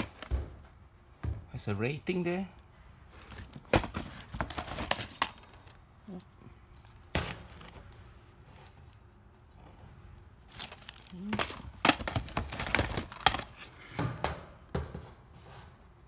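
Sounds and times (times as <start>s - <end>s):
cardboard crinkling and rustling: 0.0s - 0.7s, 3.2s - 5.8s, 10.4s - 13.7s
plastic cases clacking: 10.5s - 13.7s.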